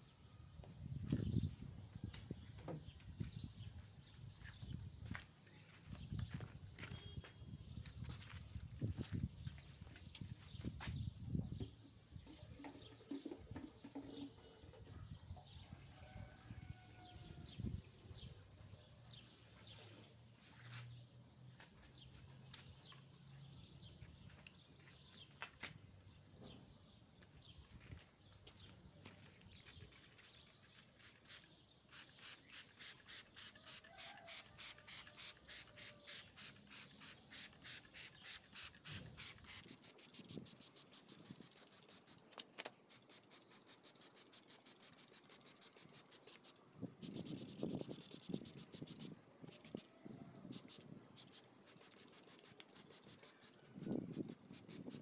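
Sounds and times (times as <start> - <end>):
spray bottle squirts: 29.6 - 55.0.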